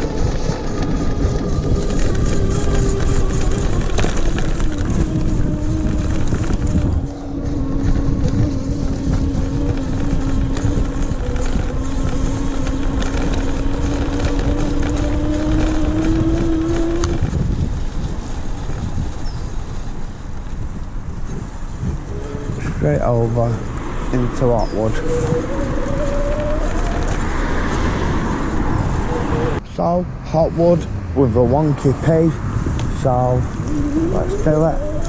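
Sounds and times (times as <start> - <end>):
electric hub motor whining: 0.0 - 29.6, 31.2 - 35.0
tyres rumbling on path: 0.0 - 35.0
wind: 0.0 - 35.0.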